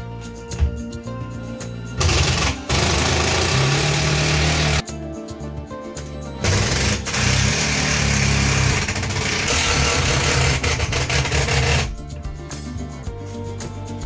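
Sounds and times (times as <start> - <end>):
cordless power tool running: 2.0 - 4.8, 6.4 - 11.9.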